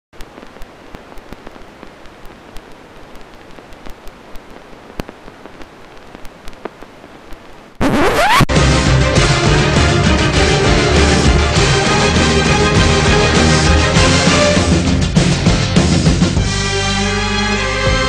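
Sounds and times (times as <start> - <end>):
crackling hiss: 0.2 - 8.5
loud music with rising sweep: 7.8 - 18.0.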